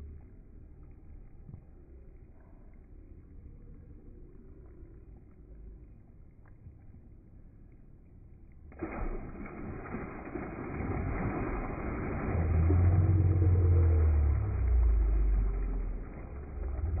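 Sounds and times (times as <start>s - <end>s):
fish splashing at water surface: 8.7s - 17.0s.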